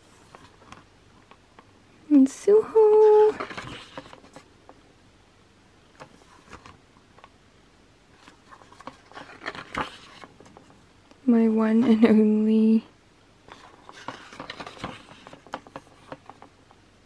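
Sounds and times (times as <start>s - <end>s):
paper pages being turned: 0.0s - 0.8s, 2.8s - 4.5s, 6.0s - 7.3s, 8.2s - 10.7s, 13.5s - 16.5s.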